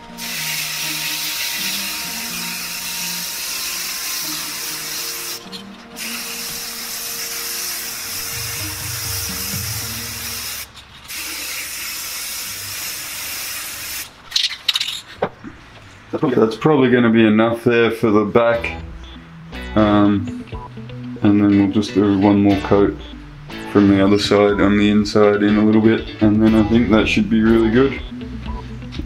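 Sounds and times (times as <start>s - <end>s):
background music: 0.0s - 10.8s, 15.9s - 29.0s
spray paint can hissing: 0.1s - 15.0s.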